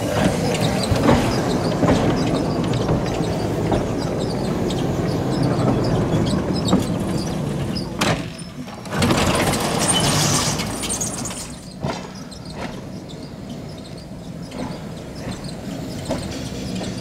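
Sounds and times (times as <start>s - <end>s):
tram running noise hissing: 0.0s - 17.0s
tram wheels clacking: 0.0s - 17.0s.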